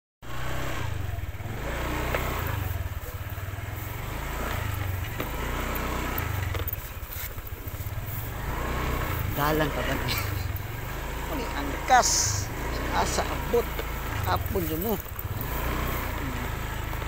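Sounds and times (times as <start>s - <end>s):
motorcycle engine running: 0.2s - 17.0s
light knocks from bumps: 4.4s - 8.1s.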